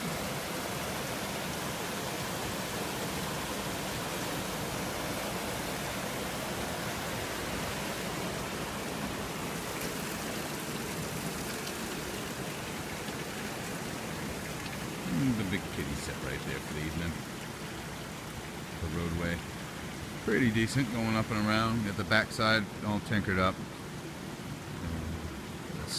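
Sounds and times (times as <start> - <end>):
water rushing over dam: 0.0 - 25.9.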